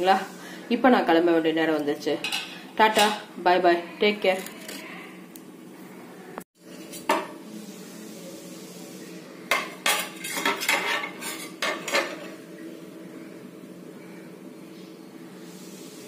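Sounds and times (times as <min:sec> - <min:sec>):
steady low hum: 0:12.3 - 0:16.0.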